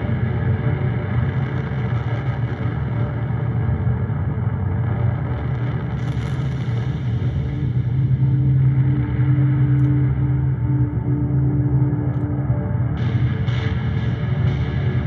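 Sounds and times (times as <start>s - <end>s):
synthesizer drone: 6.9s - 15.0s.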